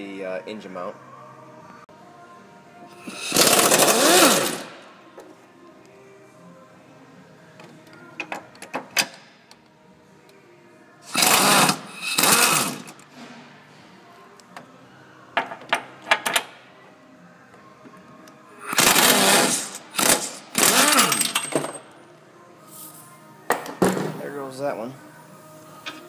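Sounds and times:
power wrench running: 3.0 - 4.8, 11.1 - 13.0, 18.7 - 21.5.

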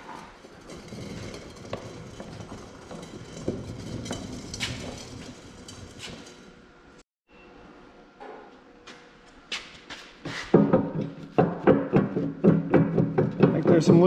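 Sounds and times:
metal scraping on steel plate: 0.0 - 6.7.

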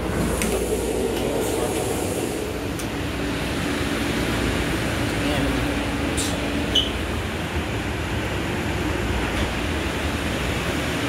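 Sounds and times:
railcar rumble and hum: 0.0 - 11.0.

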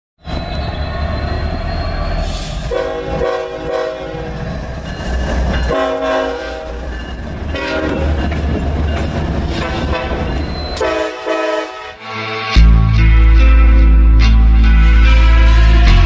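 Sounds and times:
rumble of rolling train: 0.2 - 11.9
locomotive air horn blasts: 2.3 - 4.4, 5.7 - 6.8, 7.5 - 8.1, 9.6 - 12.7, 14.6 - 16.0.

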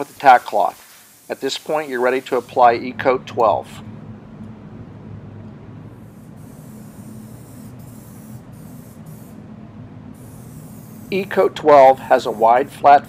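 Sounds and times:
aerosol spray can hissing: 0.0 - 2.6, 6.0 - 9.4, 10.2 - 12.8.

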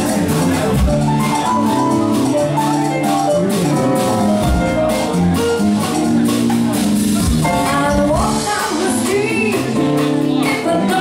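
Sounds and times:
bass guitar: 0.0 - 11.0
drum kit beat: 0.0 - 11.0.

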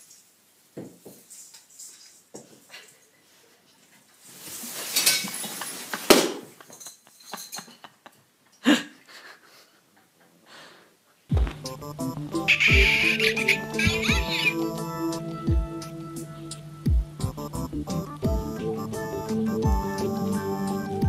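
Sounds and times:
tree branches rustling: 4.2 - 6.2
christmas tree crashing: 4.4 - 6.8
glass baubles clinking: 6.7 - 7.8.

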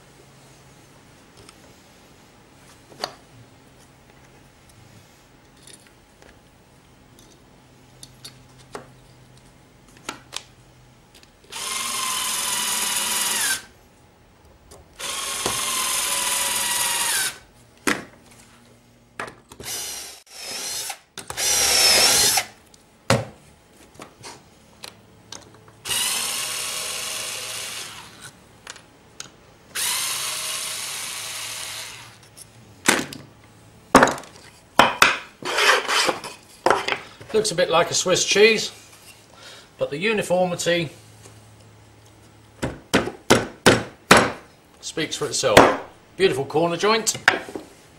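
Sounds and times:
cordless drill boring into wood: 11.5 - 13.7, 15.0 - 17.4, 19.6 - 22.5, 25.8 - 28.3, 29.8 - 32.2.

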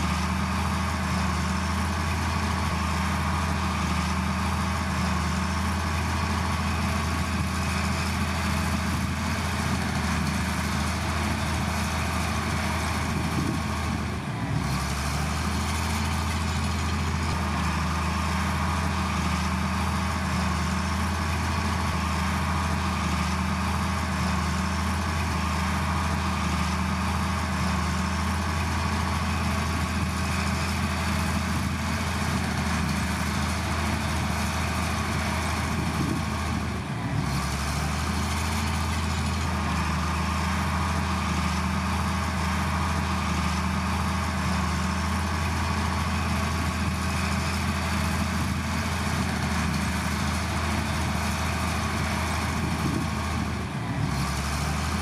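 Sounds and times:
heavy diesel engine droning: 0.0 - 55.0.

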